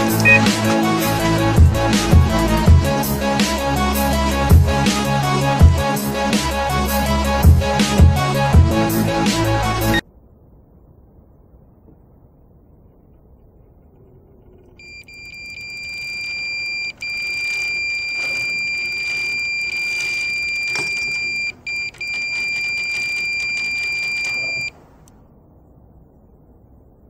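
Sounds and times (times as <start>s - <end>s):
high-pitched bite alarm beep: 0.2s - 0.5s.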